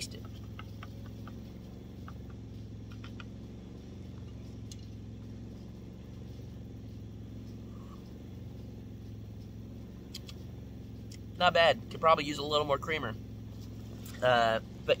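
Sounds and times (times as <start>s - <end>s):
portable generator engine running: 0.0s - 15.0s
light clicks: 10.1s - 10.5s.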